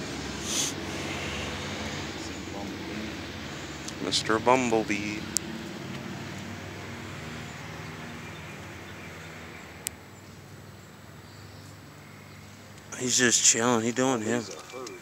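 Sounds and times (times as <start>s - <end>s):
bumblebee buzzing: 0.0s - 7.7s
traffic noise: 0.0s - 15.0s.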